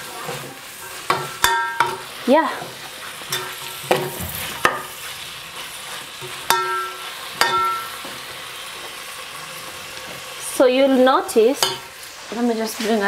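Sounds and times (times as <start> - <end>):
frying sizzle: 0.0 - 13.0
metal spoon clinking against pot: 11.6 - 11.9.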